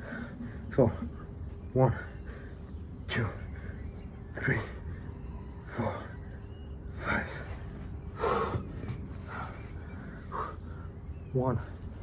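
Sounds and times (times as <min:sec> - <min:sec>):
man breathing hard: 0:00.0 - 0:01.4, 0:04.8 - 0:11.2.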